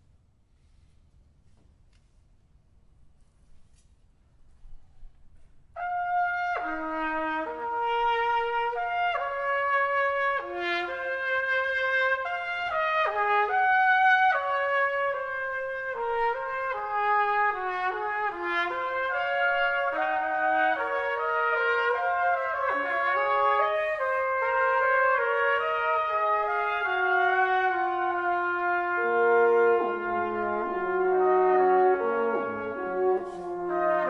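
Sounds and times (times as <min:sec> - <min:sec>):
brass quintet playing: 0:05.8 - 0:34.0.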